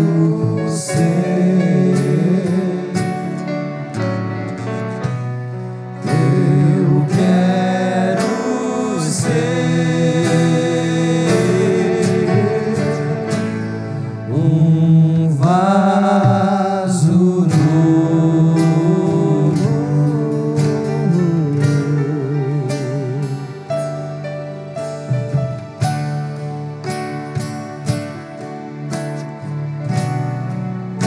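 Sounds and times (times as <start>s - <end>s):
person singing: 0.0s - 3.5s, 6.0s - 23.8s
worship band playing gospel song: 0.0s - 31.0s.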